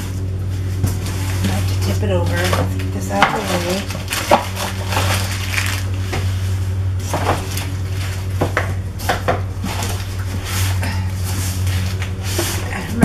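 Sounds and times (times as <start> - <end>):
steady low hum: 0.0 - 13.0
plastic wrap crinkling: 0.7 - 8.4.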